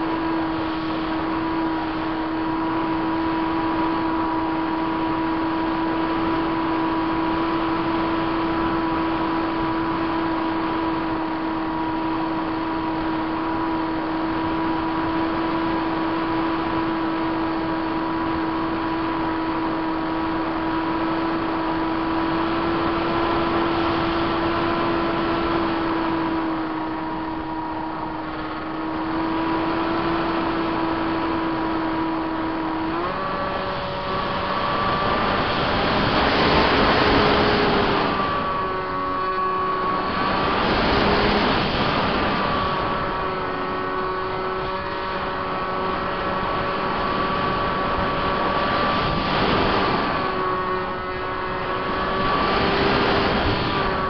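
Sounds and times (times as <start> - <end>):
electric motor buzzing whine: 0.0 - 54.0
wind rush: 0.0 - 54.0.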